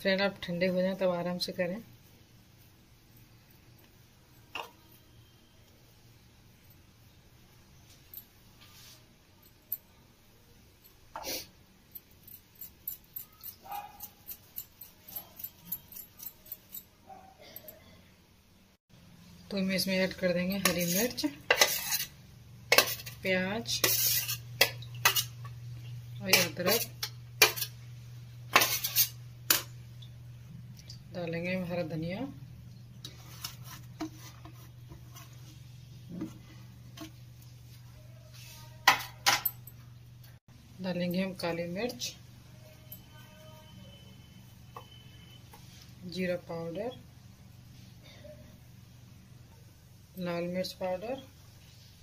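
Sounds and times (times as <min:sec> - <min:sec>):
potatoes scraping on a grater: 0:20.6 - 0:22.1, 0:22.7 - 0:25.3
utensils knocking against bowl: 0:22.7 - 0:23.2.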